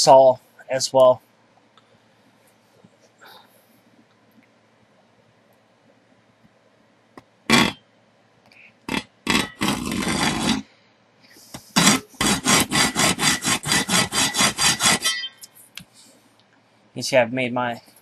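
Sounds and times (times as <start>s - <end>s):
hacksaw scraping metal: 8.9s - 10.6s, 11.8s - 15.5s.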